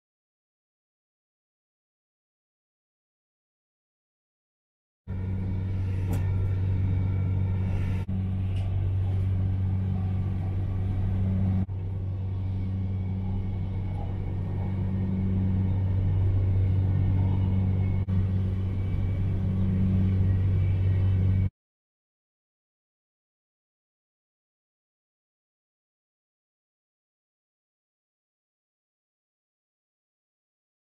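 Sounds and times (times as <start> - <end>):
train rumble inside carriage: 5.1 - 21.5.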